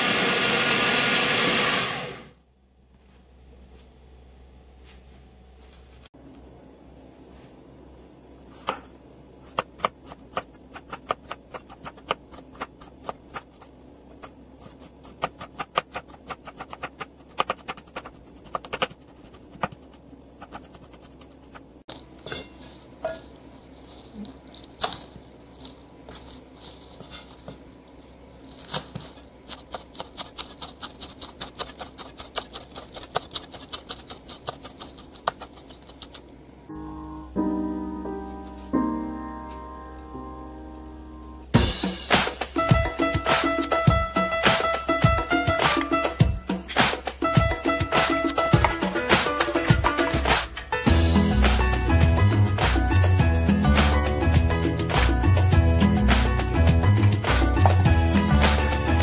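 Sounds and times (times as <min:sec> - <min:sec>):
knife chopping on cutting board: 0:08.6 - 0:20.9.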